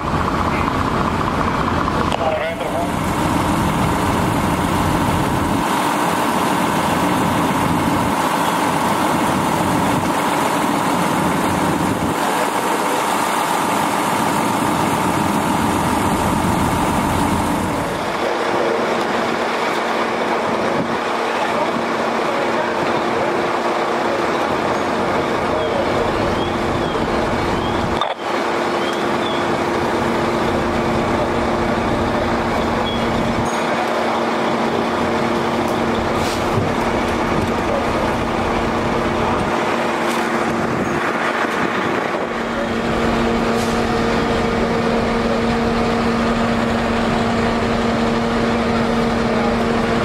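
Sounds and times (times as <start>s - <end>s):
diesel engines droning: 0.0s - 50.0s.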